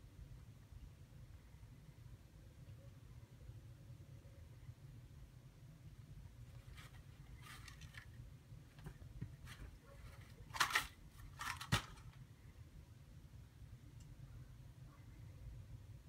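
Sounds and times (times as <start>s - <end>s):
rabbit rustling in bedding: 6.3s - 12.2s.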